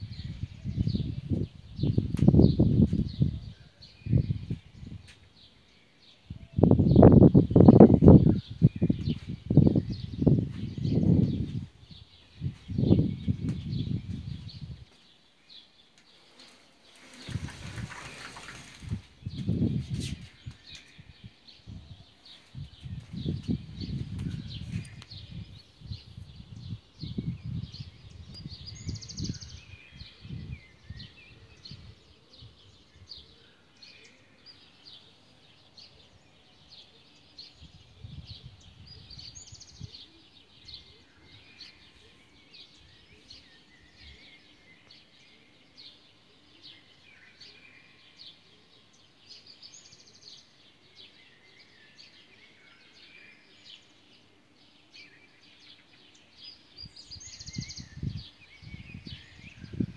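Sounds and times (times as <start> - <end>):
wind bumps on microphone: 0.0 - 5.2, 6.3 - 14.9, 16.8 - 33.2, 37.6 - 40.0, 56.8 - 59.9
small birds chirping: 0.0 - 59.9.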